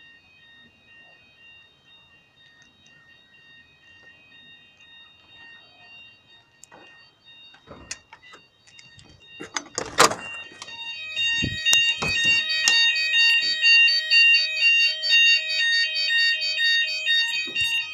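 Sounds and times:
two-tone fire alarm: 0.0 - 17.9.

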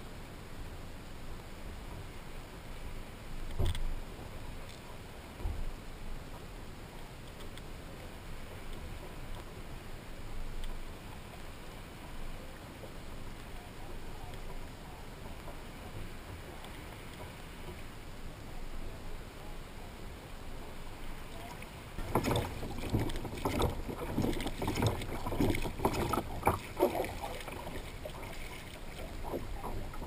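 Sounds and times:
water lapping against kayak: 0.0 - 30.0
wind: 0.0 - 30.0
kayak knocks bumps and splashes: 22.0 - 30.0.

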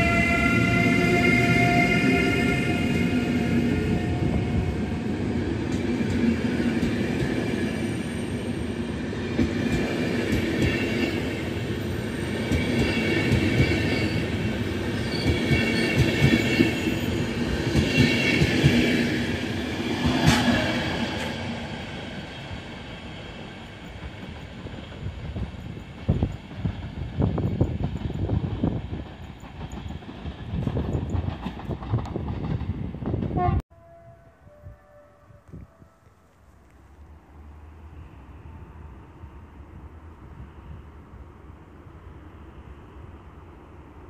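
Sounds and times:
train wheels rumbling on rails: 0.0 - 33.6
high wheel squeal: 13.1 - 17.4.

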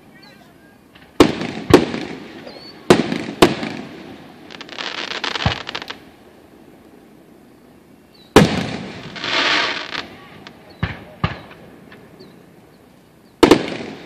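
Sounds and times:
firework crackling hiss: 0.0 - 14.0
firework bangs with rolling echo: 0.8 - 6.2, 8.3 - 12.2, 13.4 - 14.0.

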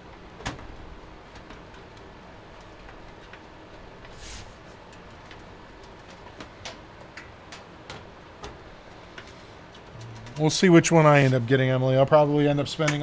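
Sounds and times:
short rustle: 4.1 - 4.8.

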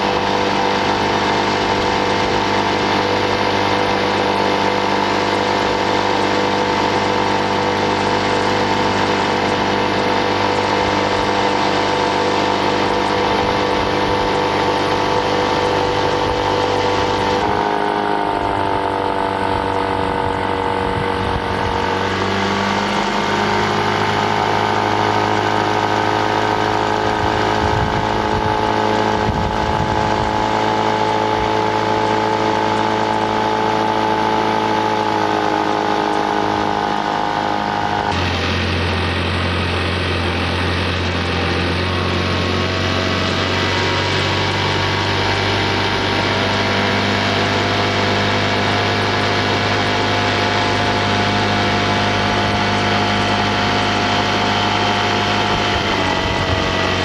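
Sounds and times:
motorboat engine droning: 0.0 - 57.0.

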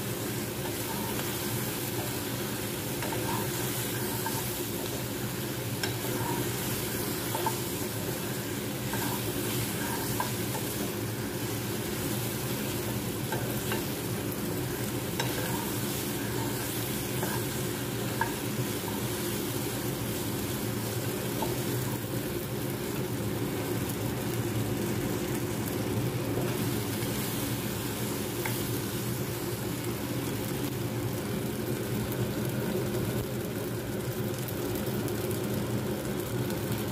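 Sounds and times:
steady low hum: 0.0 - 30.2
light sizzle of frying: 0.0 - 36.9
spatula scraping frying pan: 0.5 - 14.0, 15.0 - 19.5
spatula tapping: 5.8 - 8.2, 8.8 - 10.9, 15.1 - 19.0.

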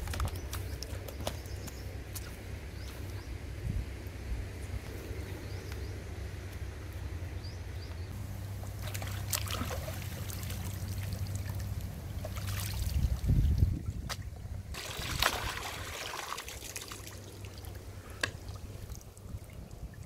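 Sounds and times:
water splashing and trickling: 8.1 - 20.0.

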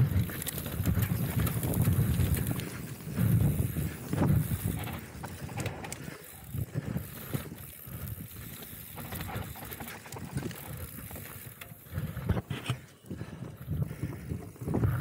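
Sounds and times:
bike knocks and rattles: 0.0 - 6.0, 7.0 - 12.7
wind on the microphone: 0.0 - 9.6, 12.0 - 15.0
bike tyres rumbling over bumps: 0.0 - 15.0.

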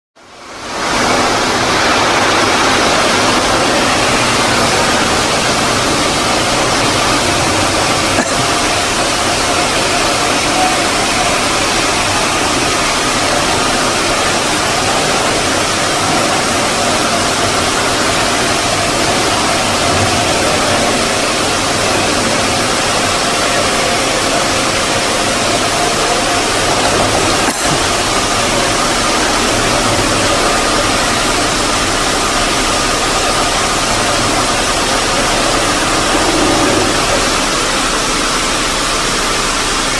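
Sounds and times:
stone polishing machine grinding: 1.0 - 39.6.

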